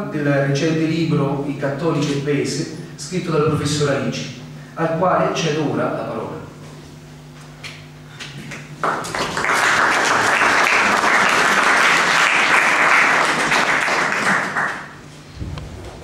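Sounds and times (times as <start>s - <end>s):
audience applauding: 8.8s - 15.0s.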